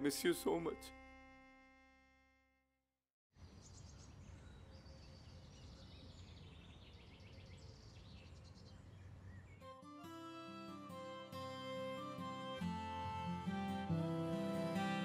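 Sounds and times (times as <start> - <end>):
small birds chirping: 3.4 - 9.8.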